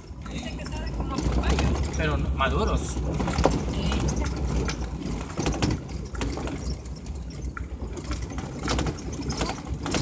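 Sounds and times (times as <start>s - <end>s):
rattles and knocks over bumps: 0.0s - 10.0s
vehicle low rumble: 0.0s - 10.0s.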